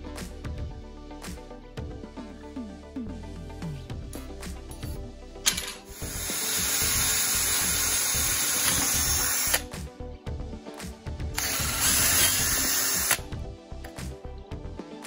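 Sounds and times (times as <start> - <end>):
cordless drill boring through wood: 5.9 - 9.7, 11.4 - 13.2.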